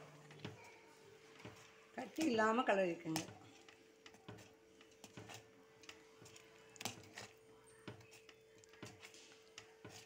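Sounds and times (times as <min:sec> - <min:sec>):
metal spoon scraping a pan: 0:03.0 - 0:10.0.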